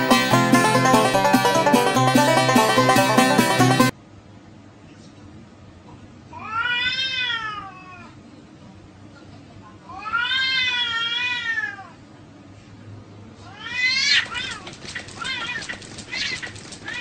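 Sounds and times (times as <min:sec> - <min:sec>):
cat yowling: 0:06.4 - 0:08.1, 0:09.9 - 0:12.0, 0:13.5 - 0:17.0.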